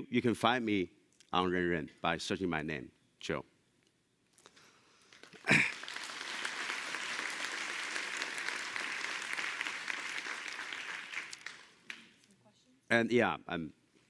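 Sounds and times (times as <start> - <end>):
large audience applauding: 5.1 - 12.2.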